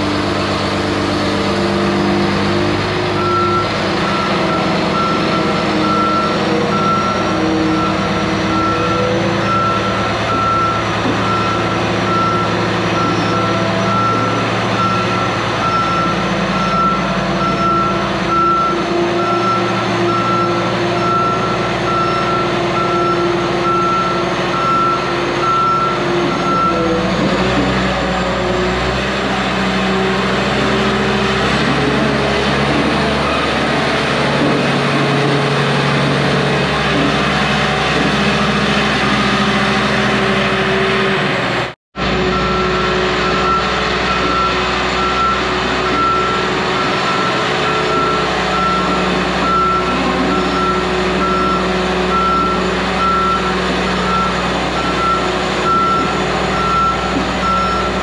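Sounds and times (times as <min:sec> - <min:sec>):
diesel engine running: 0:00.0 - 0:58.0
backup alarm beeping: 0:03.2 - 0:27.0, 0:42.3 - 0:58.0.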